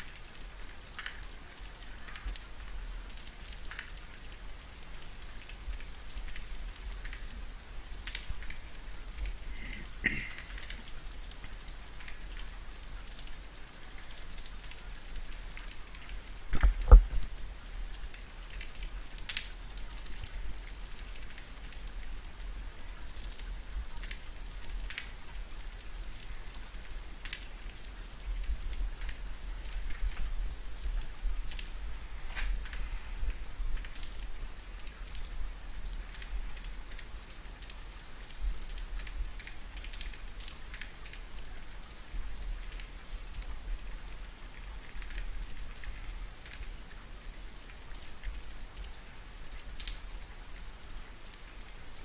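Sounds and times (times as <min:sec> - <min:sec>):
steady rain: 0:00.0 - 0:52.0.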